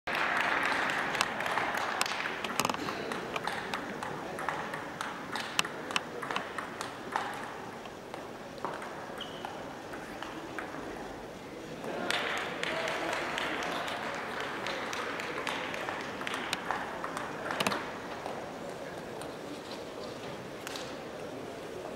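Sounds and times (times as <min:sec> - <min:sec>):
crowd noise: 0:00.1 - 0:21.9
table tennis ball clicking: 0:02.0 - 0:07.6.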